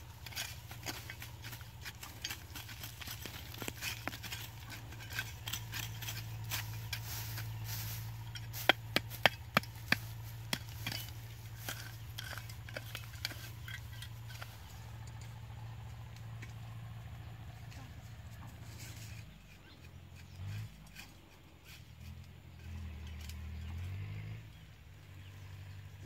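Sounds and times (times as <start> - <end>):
plastic trowel scraping soil: 0.0 - 14.8
steady low hum: 0.0 - 20.8.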